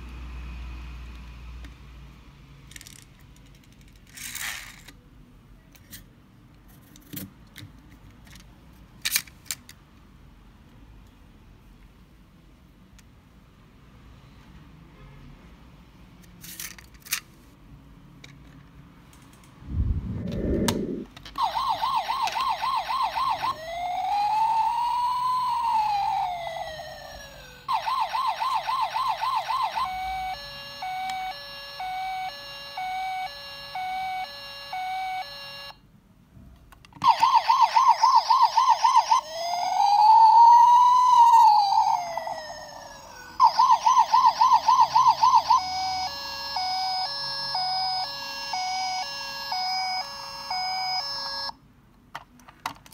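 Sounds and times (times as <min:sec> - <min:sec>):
toy electronic siren: 0:20.3 - 0:35.8, 0:37.0 - 0:51.6.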